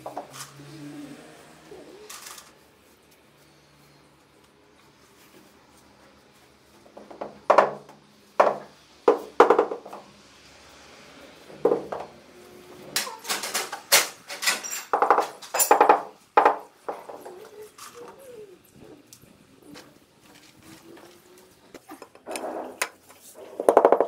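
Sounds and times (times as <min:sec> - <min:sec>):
knocks on porcelain tiles: 0:08.4 - 0:10.0, 0:23.6 - 0:24.0.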